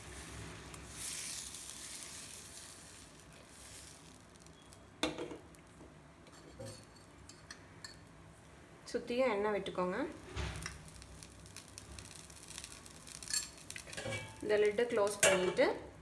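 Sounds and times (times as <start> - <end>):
batter sizzling in a pan: 0.0 - 5.8, 9.5 - 16.0.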